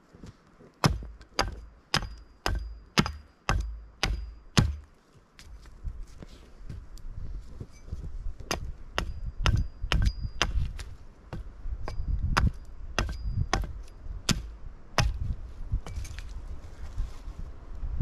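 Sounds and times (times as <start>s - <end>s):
hatchet chopping wood: 0.8s - 4.9s, 8.4s - 15.3s.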